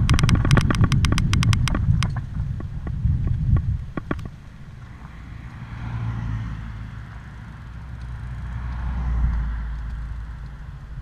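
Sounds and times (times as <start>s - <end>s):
tyres and wind rumble: 0.0s - 11.0s
car passing: 3.9s - 11.0s.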